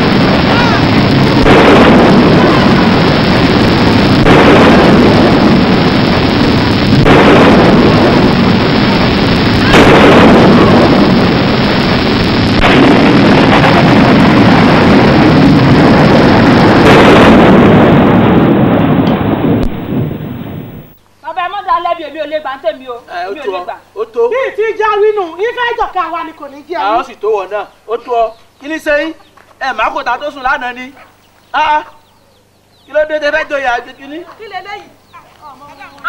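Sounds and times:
distorted rumbling noise: 0.0s - 23.2s.

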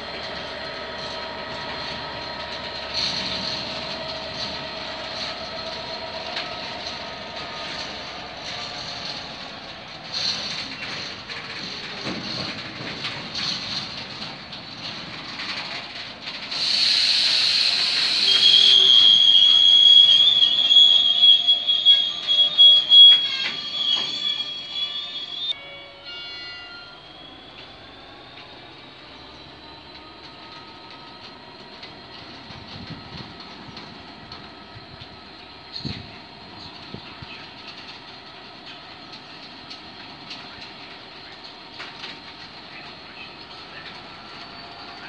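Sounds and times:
train wheels clicking over rail joints: 0.0s - 25.6s, 27.4s - 45.0s
loud hiss: 16.5s - 21.1s
high-pitched wheel squeal: 16.6s - 30.6s.

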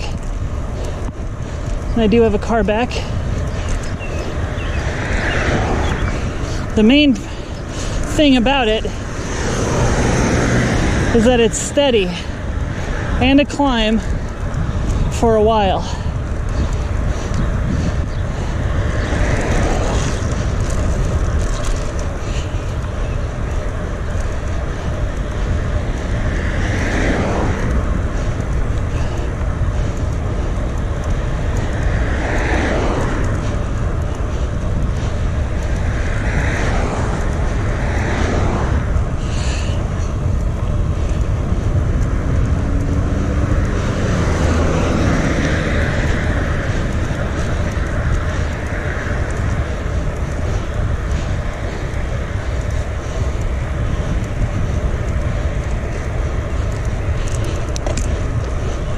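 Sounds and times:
cars passing: 0.0s - 58.9s
wind rumble on microphone: 0.0s - 58.9s.

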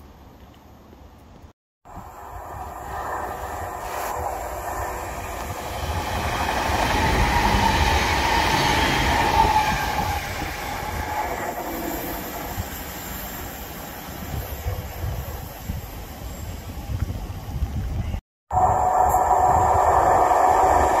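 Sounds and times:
steady high tone: 1.9s - 13.8s, 18.5s - 21.0s
electric train passing: 1.9s - 17.4s, 18.5s - 21.0s.

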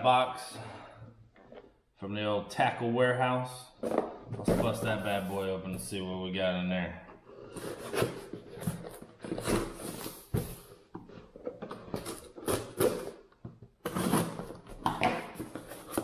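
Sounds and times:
cardboard box rustling and scraping: 7.3s - 13.1s, 13.8s - 14.7s.

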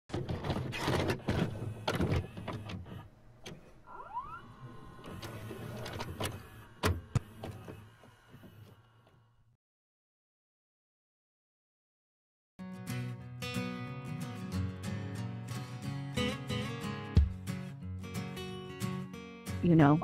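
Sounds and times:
tape mechanism clicks and clunks: 0.1s - 3.8s, 4.5s - 9.2s
short rising whine: 3.8s - 6.8s.

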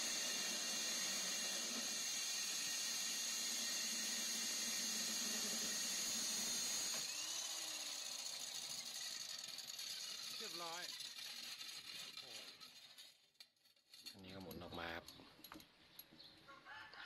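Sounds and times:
drill bit cutting: 0.0s - 11.1s
core drill motor whine: 0.0s - 12.1s.

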